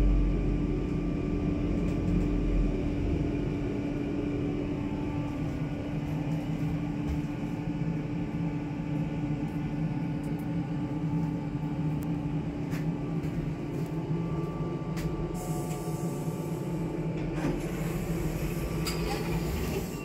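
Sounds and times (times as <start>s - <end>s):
lift car humming: 0.0s - 20.0s
lift doors sliding open: 17.2s - 20.0s.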